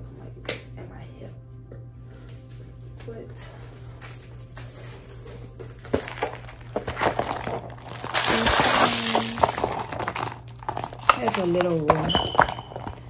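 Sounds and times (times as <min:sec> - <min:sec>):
plastic packaging crinkling: 0:05.9 - 0:13.0.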